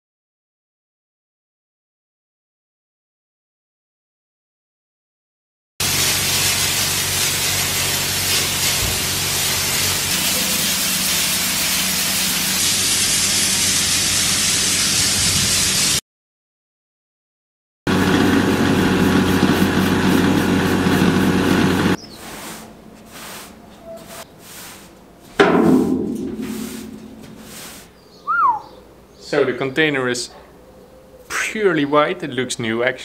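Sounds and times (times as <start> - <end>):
paint spray gun hissing: 5.8 - 16.0, 18.1 - 25.0, 26.3 - 27.9
air compressor humming: 17.9 - 27.8.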